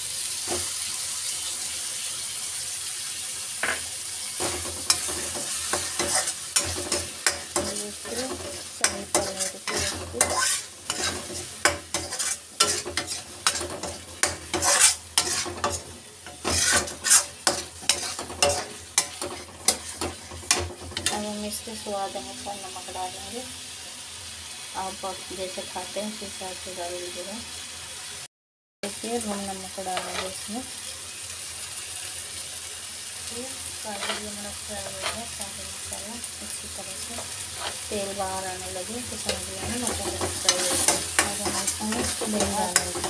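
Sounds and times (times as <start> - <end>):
food sizzling in a pan: 0.0 - 43.0
metal spatula scraping a pan: 4.4 - 21.4, 30.0 - 30.4, 33.9 - 35.4, 37.2 - 43.0.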